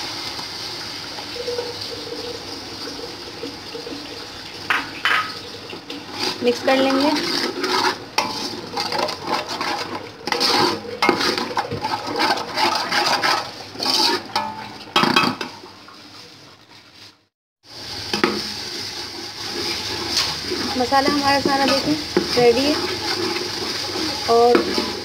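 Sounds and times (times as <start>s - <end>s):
hot oil sizzling: 0.0s - 25.0s
wooden spoon scraping metal pot: 1.4s - 17.1s, 18.2s - 25.0s.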